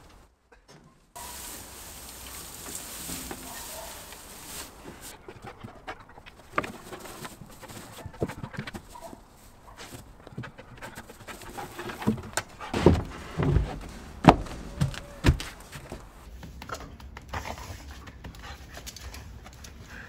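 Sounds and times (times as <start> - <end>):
dog panting: 5.1 - 12.8, 17.3 - 20.0
wooden knocks and thumps: 9.9 - 17.3.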